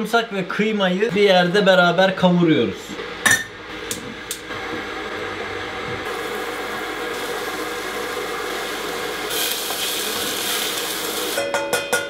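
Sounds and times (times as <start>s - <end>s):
food sizzling in oil: 6.1s - 11.5s.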